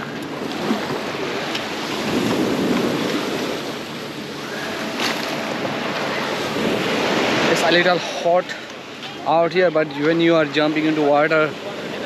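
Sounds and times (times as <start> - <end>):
wind on microphone: 0.0 - 8.2
sea waves washing on sand: 0.0 - 12.0.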